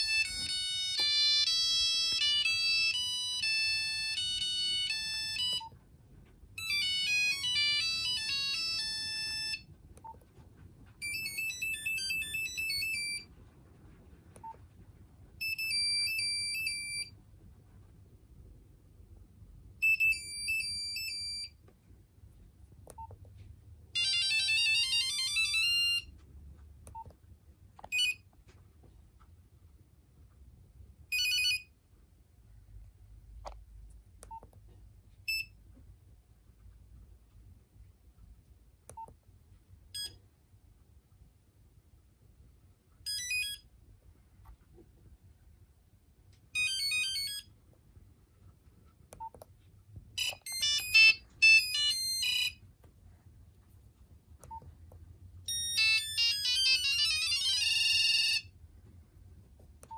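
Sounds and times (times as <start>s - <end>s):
beeping ringtone melodies: 0.0s - 5.8s, 6.6s - 9.8s, 11.0s - 13.3s, 15.4s - 17.1s, 19.8s - 21.6s, 24.0s - 26.1s, 43.1s - 43.6s, 46.6s - 47.5s, 50.2s - 52.6s, 55.5s - 58.5s
phone key beeps: 27.8s - 28.2s, 35.3s - 35.6s, 50.2s - 52.6s.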